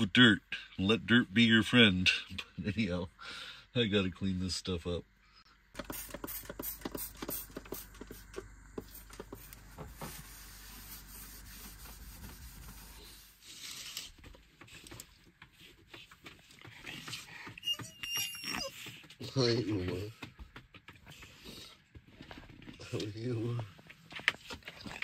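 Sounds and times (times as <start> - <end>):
spray bottle squirting: 5.8 - 9.6.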